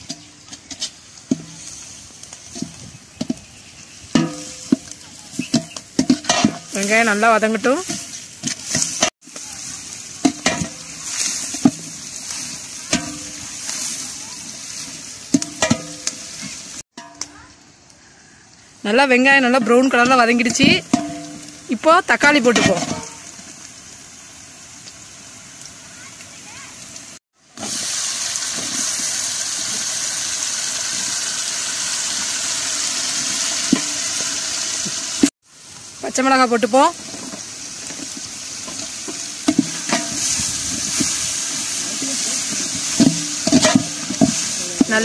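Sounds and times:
onions sizzling in oil: 0:00.0 - 0:45.0
metal spatula scraping pot: 0:04.1 - 0:09.1, 0:38.1 - 0:45.0
ladle scraping in a pot: 0:42.4 - 0:45.0.

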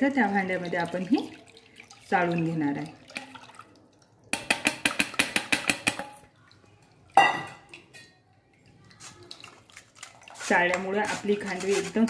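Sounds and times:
metal utensils tapping a strainer: 0:04.3 - 0:06.3.

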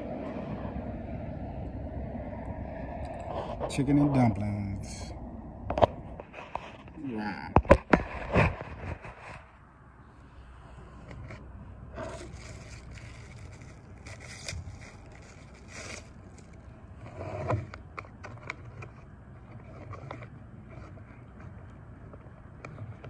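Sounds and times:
plastic fork scraping: 0:11.0 - 0:23.0
foil pouch crinkling: 0:12.0 - 0:16.6.

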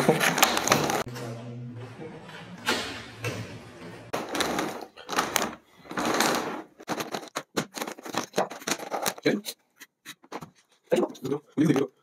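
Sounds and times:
plastic cubes sliding on tabletop: 0:04.0 - 0:07.1.

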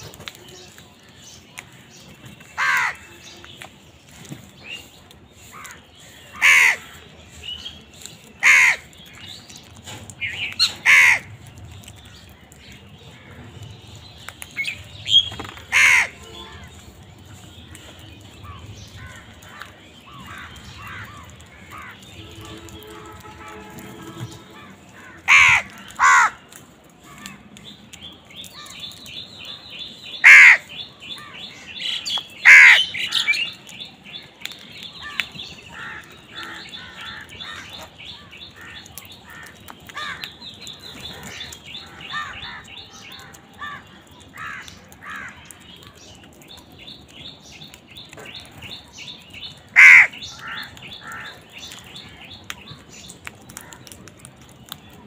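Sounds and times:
small birds chirping: 0:00.0 - 0:55.0
crows cawing: 0:02.6 - 0:03.2, 0:05.4 - 0:07.0, 0:08.4 - 0:09.0, 0:10.6 - 0:11.3, 0:15.6 - 0:16.8, 0:18.4 - 0:27.4, 0:30.2 - 0:31.5, 0:32.4 - 0:33.4, 0:35.0 - 0:40.4, 0:41.1 - 0:45.5, 0:49.6 - 0:51.8.

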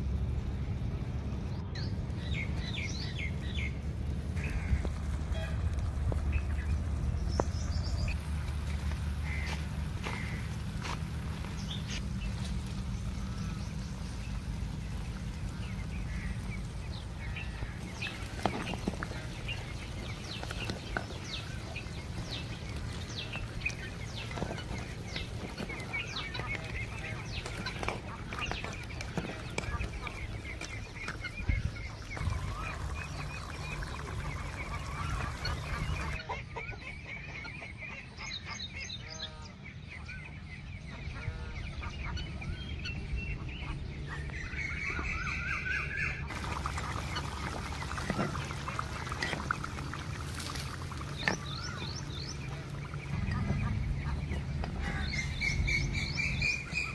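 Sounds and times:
steady low hum: 0:00.0 - 0:36.2, 0:46.1 - 0:56.9
birds calling: 0:00.0 - 0:56.9
fowl honking: 0:09.1 - 0:11.0, 0:22.6 - 0:38.5.

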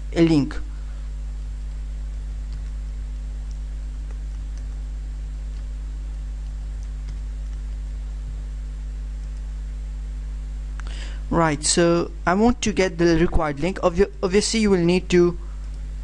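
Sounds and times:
low electrical hum: 0:00.0 - 0:16.0
keyboard and mouse clicks: 0:02.5 - 0:02.8, 0:06.4 - 0:07.8.

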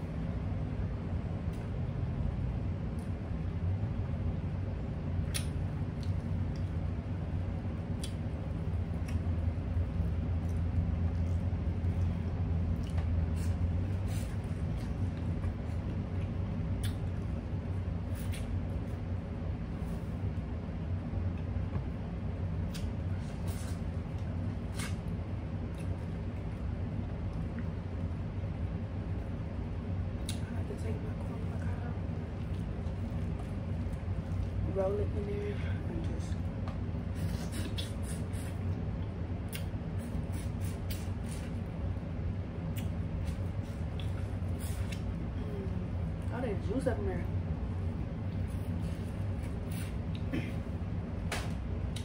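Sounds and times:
steady low hum: 0:00.0 - 0:52.0
chewing with wet mouth clicks: 0:05.2 - 0:06.8, 0:07.8 - 0:09.7, 0:10.4 - 0:17.3, 0:22.6 - 0:23.0, 0:24.7 - 0:26.6, 0:30.2 - 0:30.5, 0:37.2 - 0:41.4, 0:42.7 - 0:43.0, 0:43.9 - 0:44.2
wet mouth clicks: 0:05.3 - 0:06.2, 0:16.8 - 0:17.1, 0:37.5 - 0:38.4
chewing corn on the cob: 0:07.7 - 0:18.6, 0:22.6 - 0:28.2.

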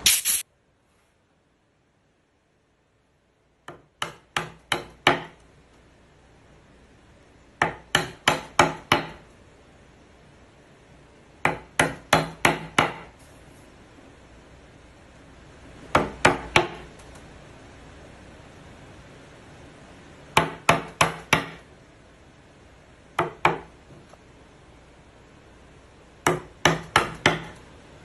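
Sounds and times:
chisel knocks on wood: 0:03.7 - 0:05.4, 0:20.4 - 0:21.6, 0:26.2 - 0:27.6.

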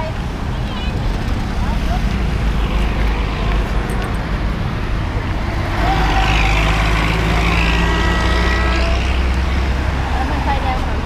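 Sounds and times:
cars passing on busy street: 0:00.0 - 0:11.0.

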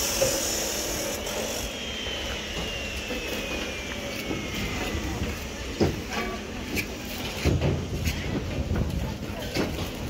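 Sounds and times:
building site machine noise: 0:00.0 - 0:10.0
faint falling whine: 0:01.0 - 0:06.8.

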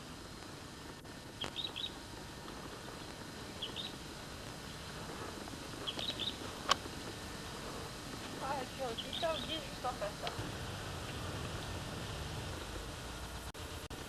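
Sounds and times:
steady background hiss: 0:00.0 - 0:14.0
small bird chirping: 0:01.4 - 0:02.0, 0:03.5 - 0:04.0, 0:05.8 - 0:06.5, 0:08.5 - 0:10.0.

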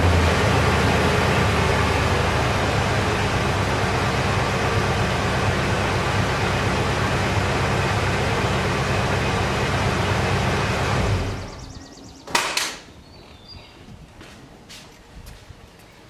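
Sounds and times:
engine idling: 0:00.0 - 0:12.2
sharp clunks: 0:12.3 - 0:12.9.

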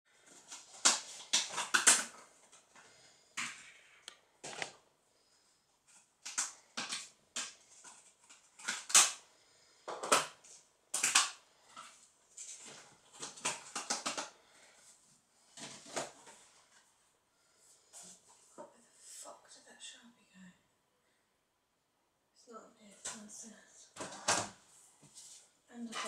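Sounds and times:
rustling and crackling bursts: 0:00.1 - 0:17.1.

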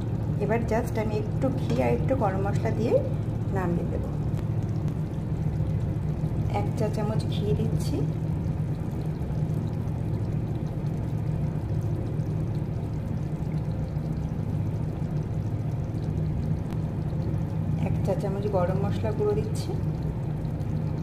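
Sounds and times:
low hum: 0:00.0 - 0:21.0.

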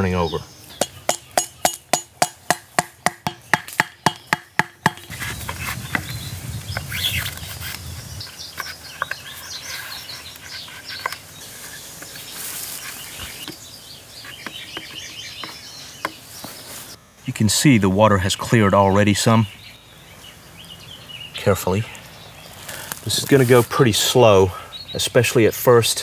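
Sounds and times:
birds chirping: 0:00.0 - 0:26.0
machete striking bamboo: 0:00.8 - 0:05.1
bamboo and leaves rustling: 0:03.6 - 0:17.3, 0:21.8 - 0:24.4.

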